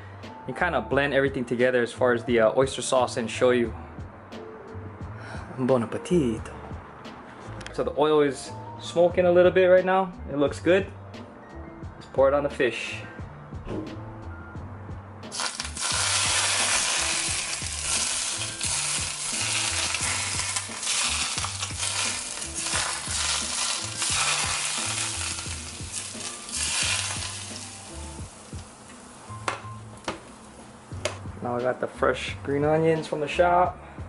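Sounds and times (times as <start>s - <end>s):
hot oil sizzling and crackling: 15.3s - 30.7s.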